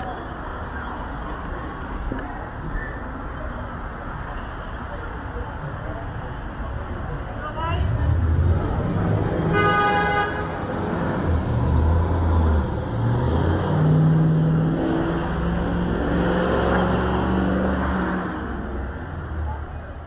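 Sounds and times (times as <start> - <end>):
street traffic engines: 0.0 - 20.0
vehicle horn honking: 9.5 - 10.6.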